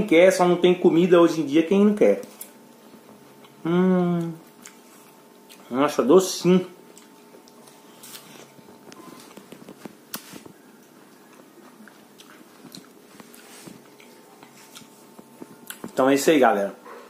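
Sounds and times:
person chewing melon: 3.4s - 5.7s, 6.8s - 16.0s.

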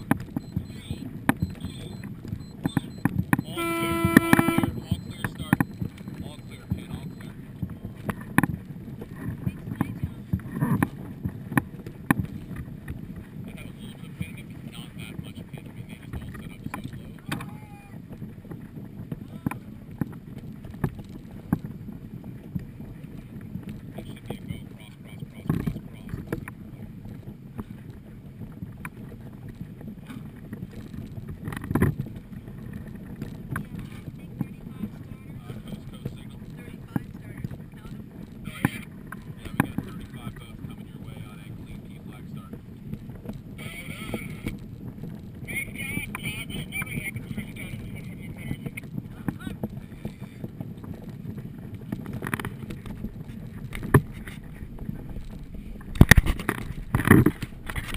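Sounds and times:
waves slapping boat hull: 0.0s - 57.9s
wind buffeting microphone: 0.0s - 57.9s.

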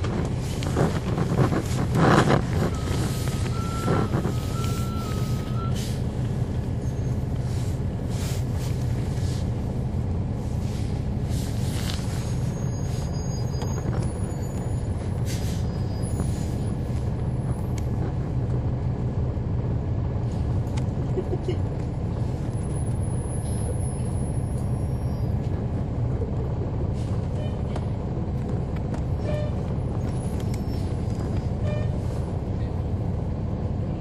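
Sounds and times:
bus diesel engine drone: 0.0s - 34.0s.

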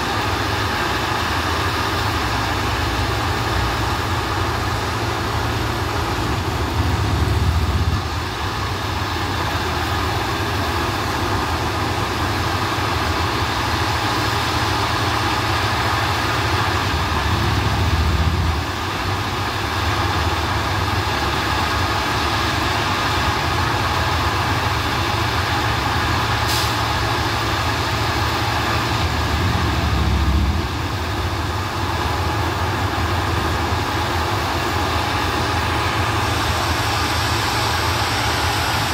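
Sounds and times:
diesel engine running: 0.0s - 38.9s
heavy low rumble: 28.9s - 38.9s.

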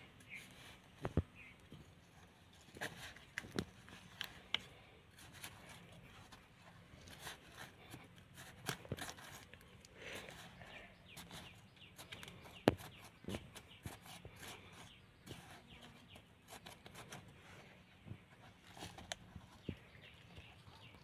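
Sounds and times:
stick scraping dry soil: 2.0s - 17.6s.

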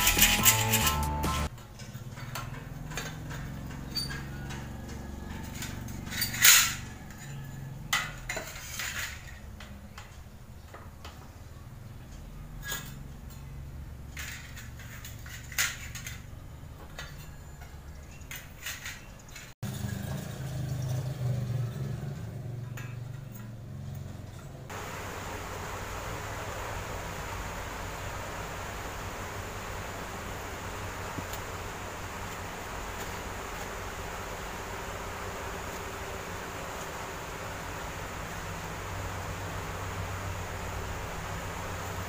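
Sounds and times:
sheet steel strips clinking: 0.0s - 9.7s.

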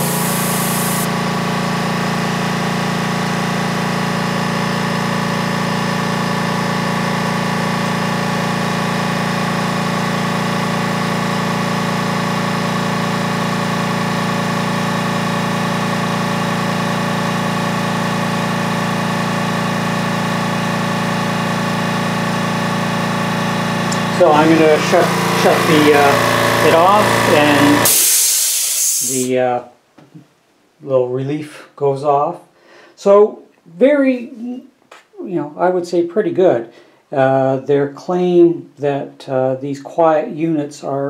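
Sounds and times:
air compressor humming: 0.0s - 29.4s.

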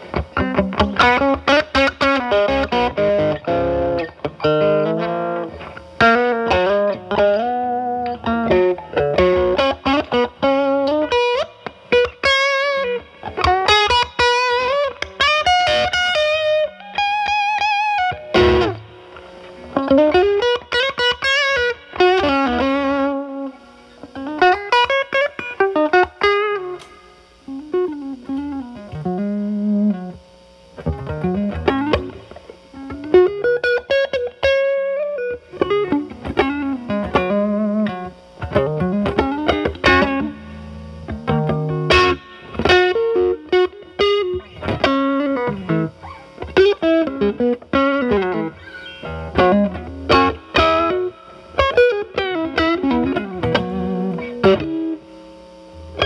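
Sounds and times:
strummed guitar chord: 0.0s - 30.2s, 30.8s - 55.1s
overdriven electric guitar lead: 0.0s - 56.0s.

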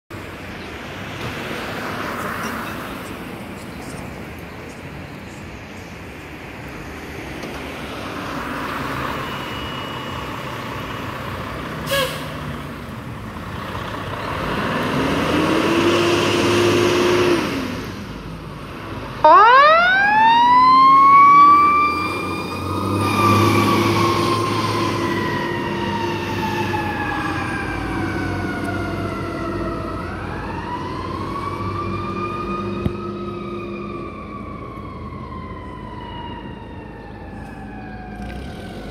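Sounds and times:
fire engine revving: 7.8s - 38.9s.

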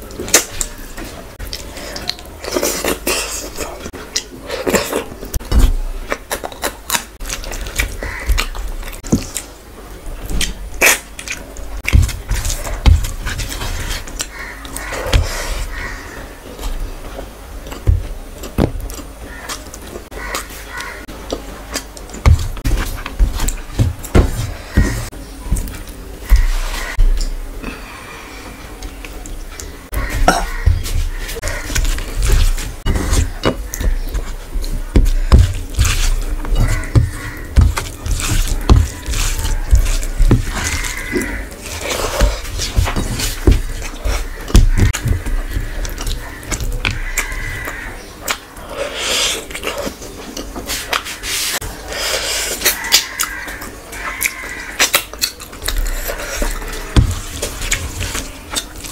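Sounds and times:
chewing and wet mouth sounds: 0.0s - 9.6s, 10.2s - 27.4s, 28.5s - 58.9s
dull thumps: 11.8s - 14.2s, 22.1s - 27.5s, 29.9s - 47.4s
fingers squishing rice: 30.0s - 58.9s.

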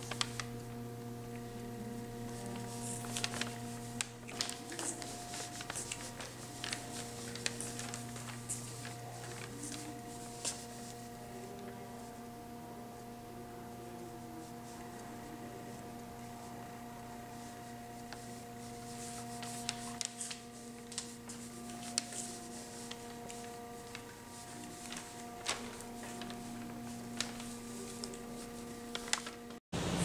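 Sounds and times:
low multi-tone hum: 0.0s - 30.0s.

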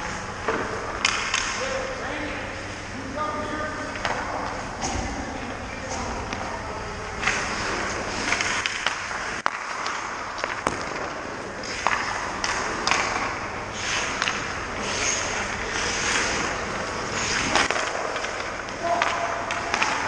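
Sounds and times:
hockey sticks and pucks clacking: 0.4s - 1.9s, 3.9s - 5.1s, 7.2s - 20.0s
skate blades scraping ice: 7.2s - 20.0s.

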